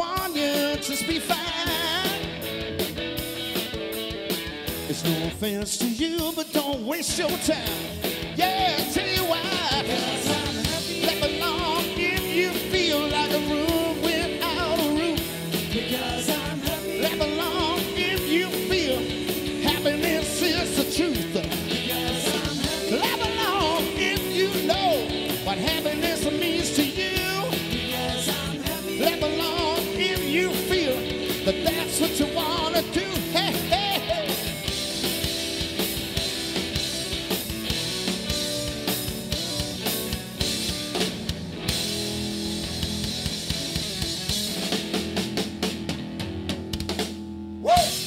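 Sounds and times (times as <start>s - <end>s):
man singing: 0.0s - 2.4s, 4.9s - 34.6s, 47.6s - 48.0s
drum kit: 0.0s - 48.0s
electric guitars: 0.0s - 48.0s.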